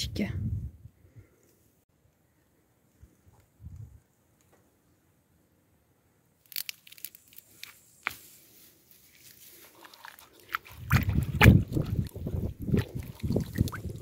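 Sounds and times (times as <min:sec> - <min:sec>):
carrot tearing from soil: 0:06.4 - 0:08.4, 0:09.0 - 0:14.0
water sloshing and splashing: 0:09.5 - 0:14.0.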